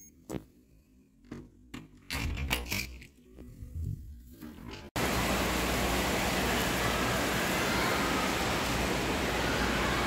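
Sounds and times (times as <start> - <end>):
water noise: 5.0 - 10.0.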